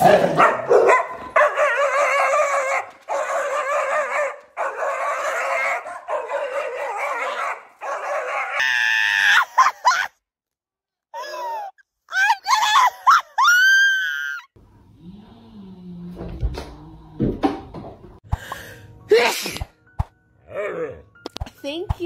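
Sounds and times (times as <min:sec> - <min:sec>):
dog howling and whining: 0:01.3 - 0:08.6.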